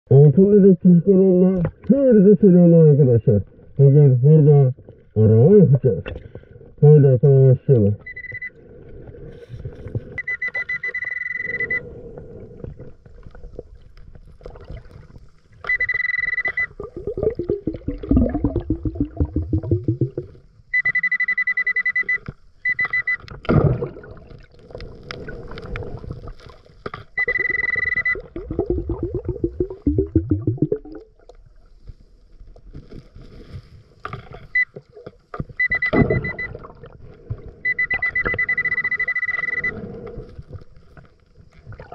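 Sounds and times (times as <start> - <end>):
metal detector beeping: 8.0 - 8.6, 10.2 - 11.9, 15.6 - 16.8, 20.7 - 23.3, 27.2 - 28.4, 35.6 - 36.6, 37.6 - 40.0
diver's exhaled bubbles gurgling: 12.2 - 15.2, 16.7 - 20.4, 23.4 - 26.6, 28.2 - 31.6, 41.6 - 41.9.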